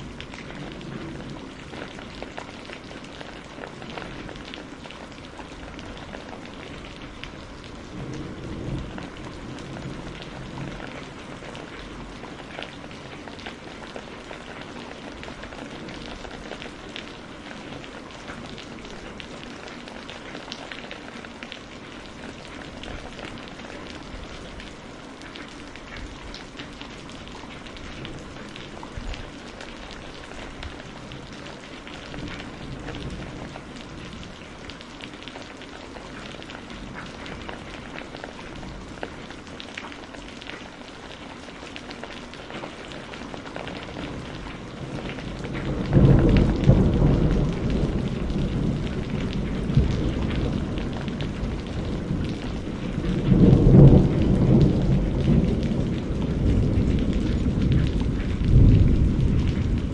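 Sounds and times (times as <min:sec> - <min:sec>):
rain drops tapping: 0:00.0 - 0:59.9
steady rain: 0:00.0 - 0:59.9
low thunder rumble: 0:06.7 - 0:12.2, 0:44.1 - 0:59.9.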